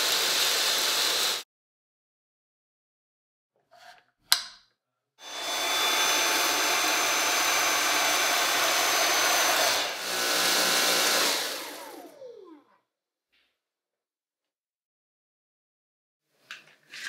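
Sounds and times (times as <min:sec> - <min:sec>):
vacuum motor whining: 0:05.2 - 0:12.4.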